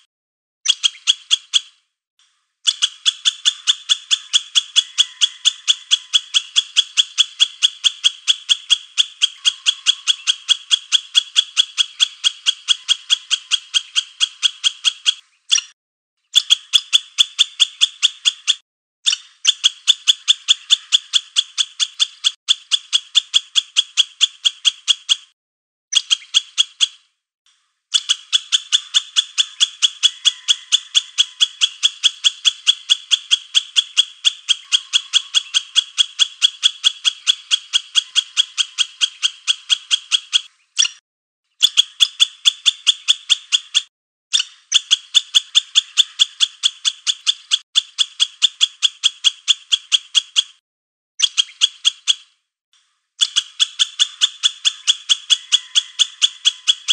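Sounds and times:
high-pitched animal call: 0:02.7 - 0:15.8, 0:28.0 - 0:41.0, 0:53.2 - 0:56.9.

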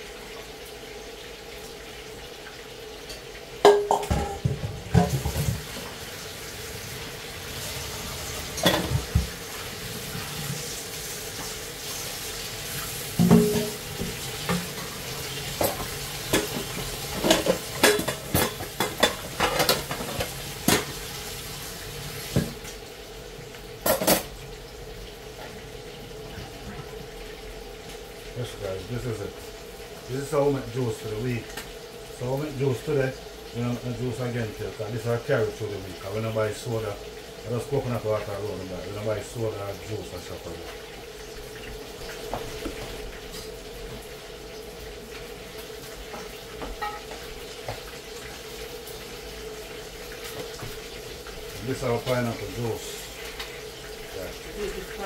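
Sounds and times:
food frying: 0:00.0 - 0:55.0
pots and dishes clattering: 0:03.0 - 0:06.2, 0:07.6 - 0:12.0, 0:12.7 - 0:21.1, 0:22.2 - 0:22.7, 0:23.8 - 0:24.4, 0:41.5 - 0:44.0, 0:46.0 - 0:49.0.

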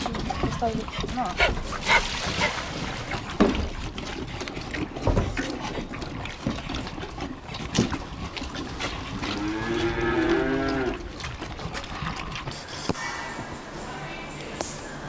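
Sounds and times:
knocks at feed trough: 0:03.2 - 0:04.0
calf mooing: 0:09.2 - 0:11.2.

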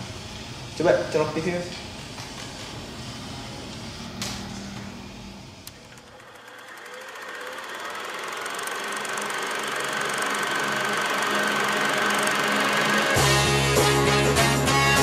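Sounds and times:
steady hum: 0:00.0 - 0:15.0
rock music with beat: 0:13.2 - 0:15.0.

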